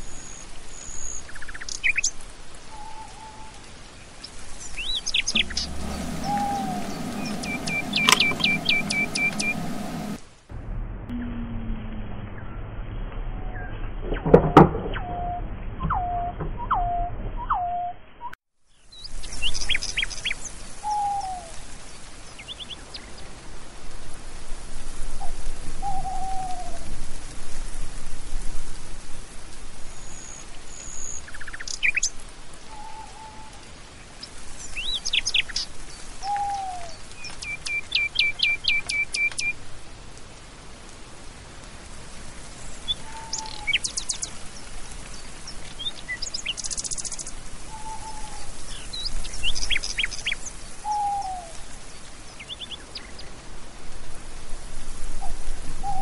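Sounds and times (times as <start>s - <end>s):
faint hiss: 0.0s - 10.5s, 18.7s - 56.0s
birds whistling: 4.6s - 10.2s, 36.2s - 39.5s, 42.9s - 44.3s
bird trill: 4.8s - 10.2s
high bird chirps: 4.8s - 10.2s.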